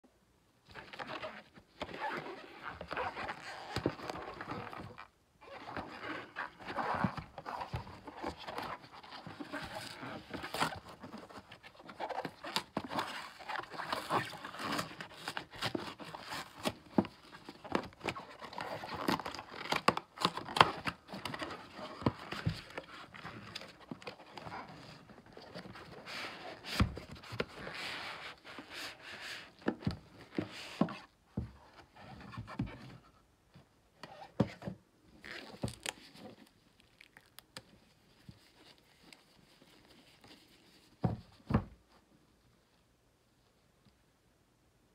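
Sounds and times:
cardboard and glove rustling: 0.8s - 33.2s, 34.0s - 37.0s, 37.6s - 42.1s.

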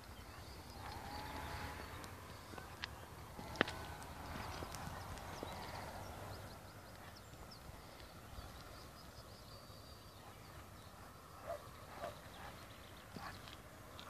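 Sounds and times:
small bird chirps: 0.0s - 13.6s
low wind rumble: 0.0s - 14.0s
distant dog barking: 11.0s - 13.6s.

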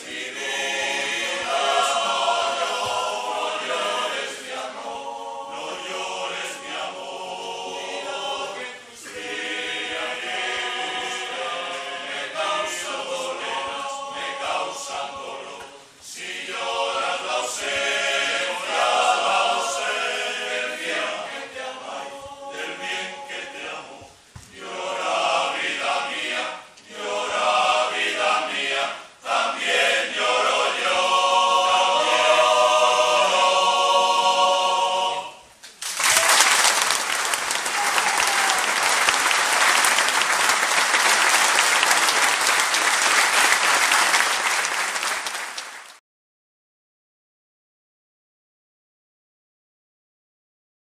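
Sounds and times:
men's choir singing a cappella: 0.0s - 35.4s.

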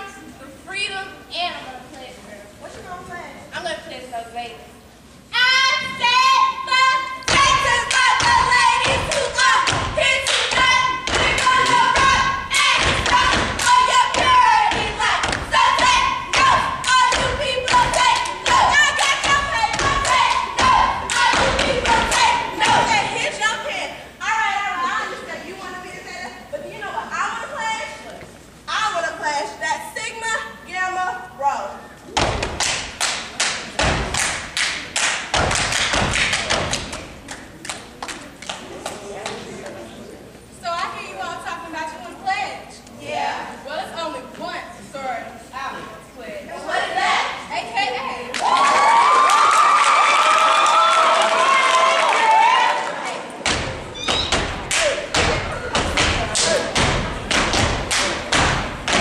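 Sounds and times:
voices chanting: 5.4s - 25.2s
hand claps: 7.3s - 12.1s, 32.2s - 39.4s, 53.4s - 59.0s
rhythmic foot stomps on stage: 7.3s - 23.1s, 33.8s - 34.6s, 35.2s - 37.0s, 53.4s - 59.0s
foot stomps: 53.4s - 59.0s.

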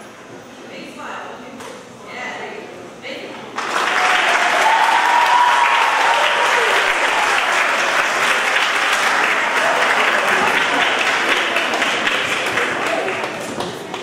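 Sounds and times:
audience applauding: 3.6s - 14.0s.

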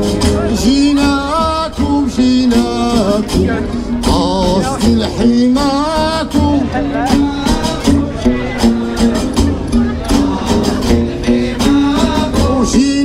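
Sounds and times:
low bass line: 0.0s - 13.0s
man singing: 0.0s - 13.0s
rattling percussion: 5.9s - 12.6s.

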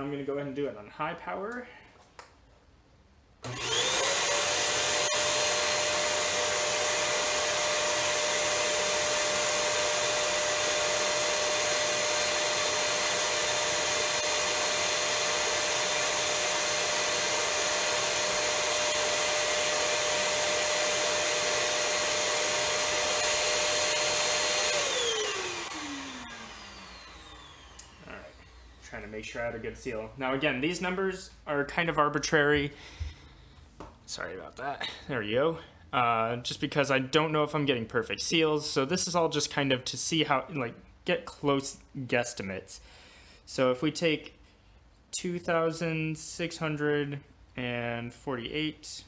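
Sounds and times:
stick vacuum whining: 3.4s - 29.3s.

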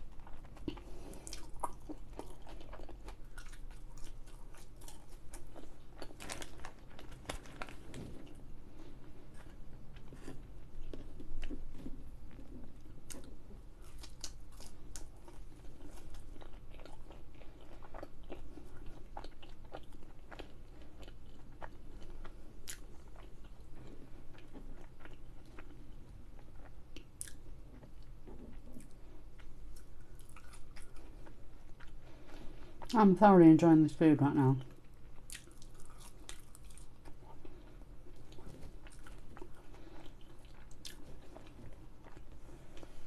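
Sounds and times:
person chewing food: 0.0s - 33.0s, 34.6s - 43.0s.

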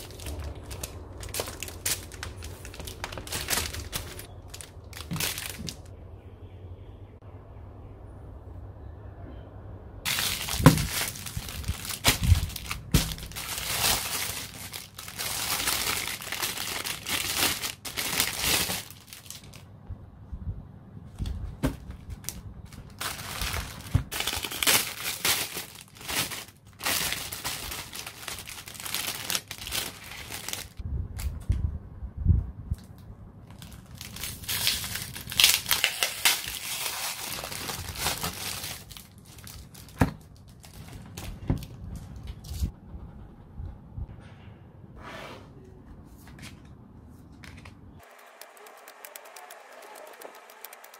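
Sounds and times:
packaging crinkling: 0.0s - 5.9s, 10.1s - 19.6s, 21.6s - 30.8s, 33.5s - 41.8s, 48.0s - 50.9s.

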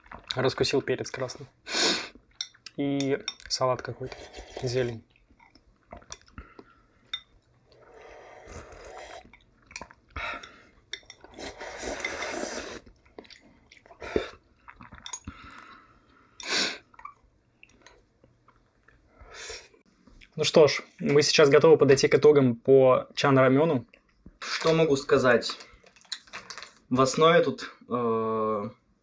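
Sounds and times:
chewing: 0.0s - 0.4s, 3.4s - 15.9s, 16.8s - 19.0s
slurping noodles: 3.8s - 5.1s, 7.6s - 15.8s.

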